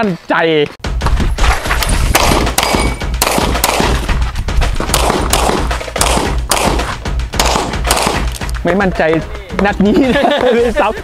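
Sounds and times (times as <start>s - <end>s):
bullets clanging on steel targets: 1.8s - 4.1s
pistol shots: 1.8s - 4.1s, 4.8s - 8.6s.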